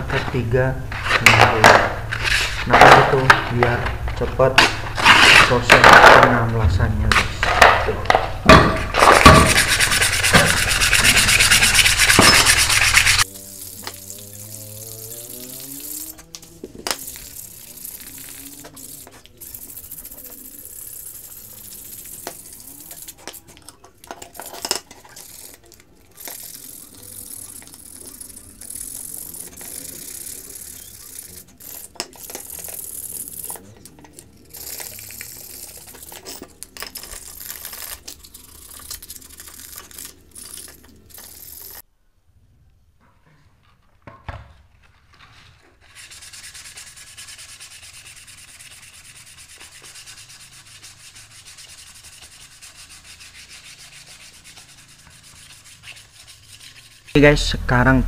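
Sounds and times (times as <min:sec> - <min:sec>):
sandpaper scraping metal pipe: 0:08.8 - 0:16.3, 0:16.9 - 0:41.8, 0:45.8 - 0:57.6.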